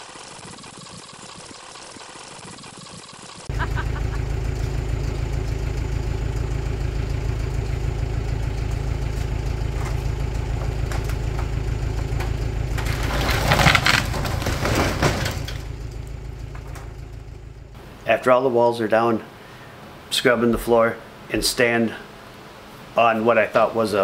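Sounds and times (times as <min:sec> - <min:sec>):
engine idling: 0:03.1 - 0:18.4
wooden wall collapsing with crash: 0:09.5 - 0:17.2.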